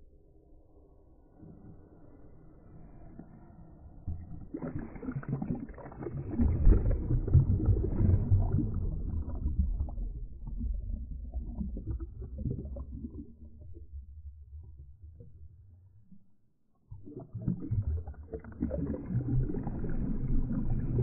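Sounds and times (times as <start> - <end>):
underwater churning rumble: 4.1 - 16.1, 16.9 - 21.0.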